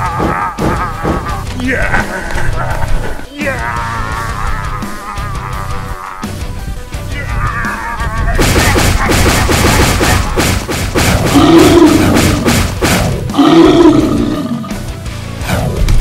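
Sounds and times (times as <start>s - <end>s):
loud rock music: 0.0s - 16.0s
monster roar: 11.3s - 12.5s, 13.3s - 14.8s.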